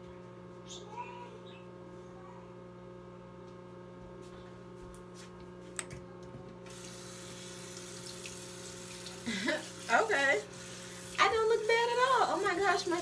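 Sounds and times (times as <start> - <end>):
faint electrical hum: 0.0 - 13.0
tap running water into sink: 6.7 - 9.9, 10.5 - 13.0.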